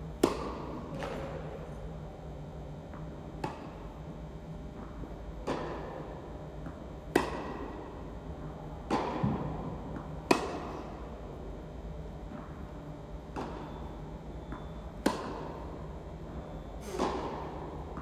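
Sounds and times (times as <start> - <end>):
tennis ball hit by rackets: 0.2 - 1.3, 3.4 - 3.8, 7.1 - 7.8, 8.8 - 10.9, 14.5 - 15.5, 16.9 - 18.0.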